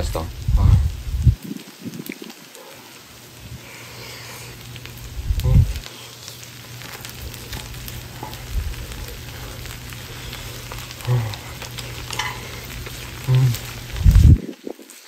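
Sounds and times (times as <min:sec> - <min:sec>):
fried rice sizzling: 0:00.0 - 0:15.0
low voice humming: 0:00.4 - 0:01.1, 0:05.2 - 0:06.5, 0:07.1 - 0:14.4
metal spoon stirring: 0:07.3 - 0:14.0.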